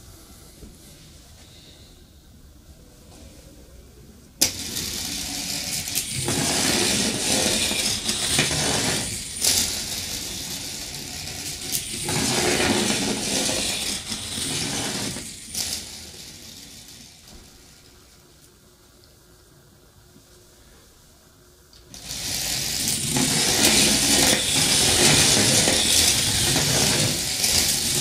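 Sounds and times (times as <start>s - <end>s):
battery rattling through wire coil: 4.4s - 17.3s, 21.9s - 28.0s.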